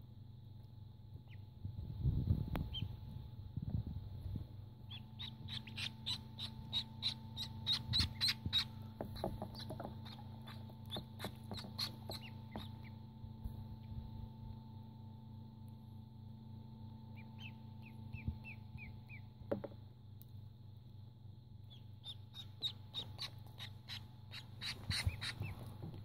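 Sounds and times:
ducklings peeping: 0:01.2 - 0:01.5, 0:02.6 - 0:03.0, 0:04.8 - 0:13.1, 0:17.0 - 0:19.4, 0:21.6 - 0:25.9.

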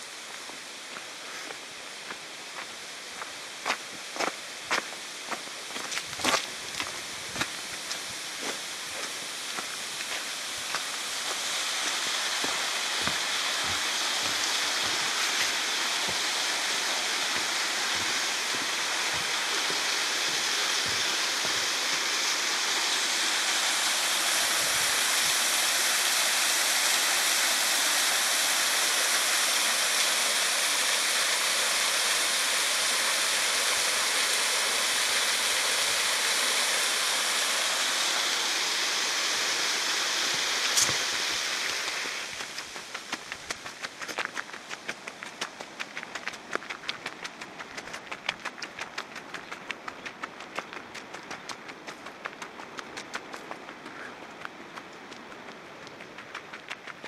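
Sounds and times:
small waterfall rushing: 0:00.0 - 0:57.0
footsteps on wooden footbridge: 0:00.3 - 0:22.2, 0:40.8 - 0:57.0.

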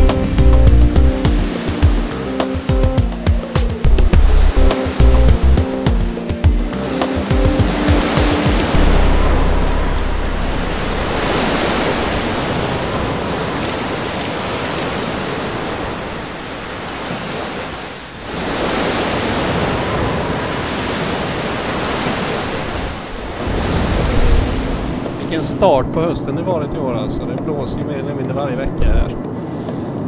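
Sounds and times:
rushing water: 0:06.8 - 0:25.5.

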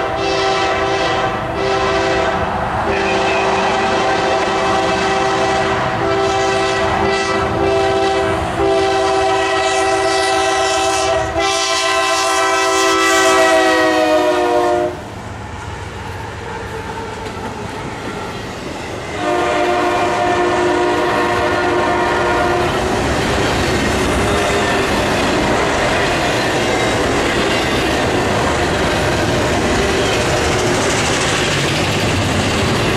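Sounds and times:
locomotive horn blasts: 0:00.0 - 0:15.1, 0:19.1 - 0:22.8
train rumbling by: 0:00.0 - 0:32.9.

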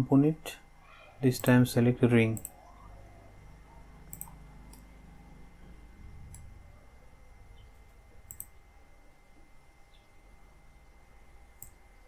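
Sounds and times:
faint steady background tone: 0:00.0 - 0:12.0
computer mouse clicks: 0:02.4 - 0:02.6, 0:04.0 - 0:04.9, 0:08.3 - 0:08.6, 0:11.6 - 0:11.8.

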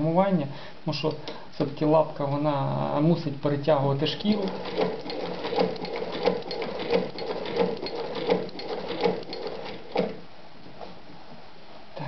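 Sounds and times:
sewing machine clacking: 0:04.1 - 0:10.2.

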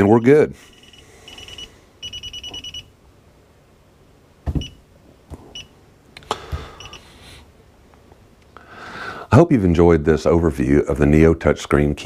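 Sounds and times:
short high keypad beeps: 0:00.7 - 0:02.9.

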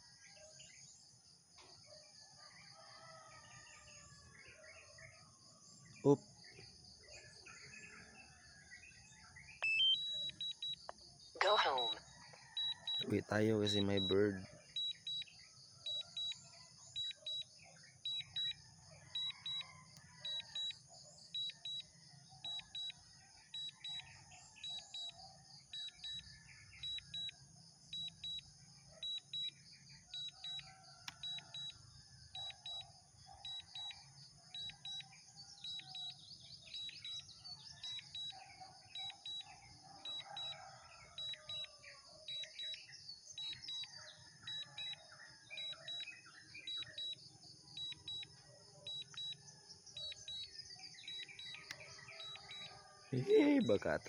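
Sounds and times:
birds chirping faintly: 0:07.6 - 0:54.0
high double beeps: 0:09.6 - 0:10.8.

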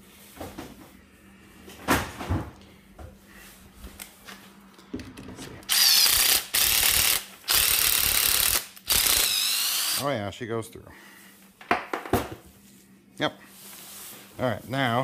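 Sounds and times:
cordless drill whining: 0:05.7 - 0:10.1.

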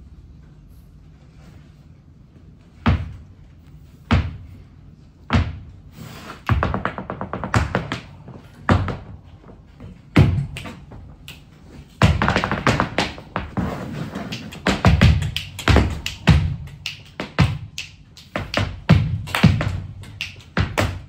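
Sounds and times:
rapid heel-and-toe taps: 0:02.8 - 0:03.3, 0:04.1 - 0:04.5, 0:05.2 - 0:21.0
shoes stamping on stage floor: 0:02.8 - 0:03.3, 0:04.0 - 0:04.6, 0:05.2 - 0:21.0.

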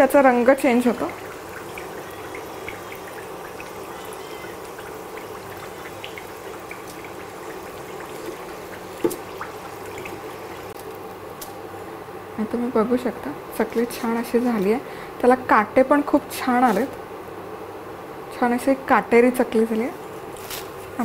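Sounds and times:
food deep-frying in hot oil: 0:00.0 - 0:11.0.

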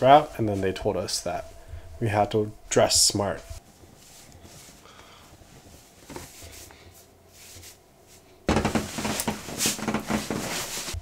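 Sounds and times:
clothes rustling: 0:03.2 - 0:11.0
knocks: 0:08.5 - 0:10.7.

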